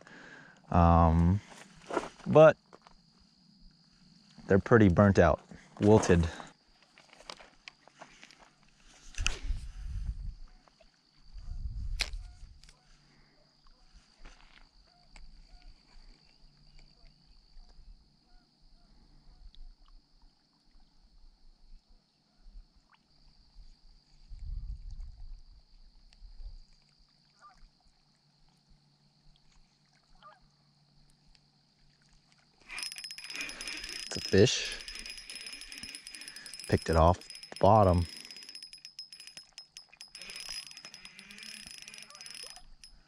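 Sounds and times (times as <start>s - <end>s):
faint clicks: 32.7s - 43.0s.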